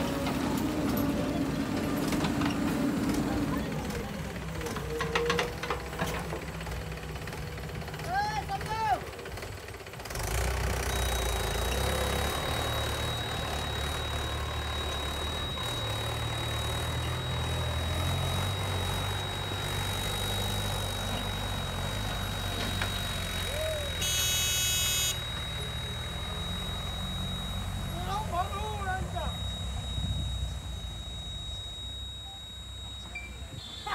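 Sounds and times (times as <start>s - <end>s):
diesel engines running: 0.0s - 33.9s
high-pitched tone: 11.0s - 33.9s
high whine: 11.1s - 33.9s.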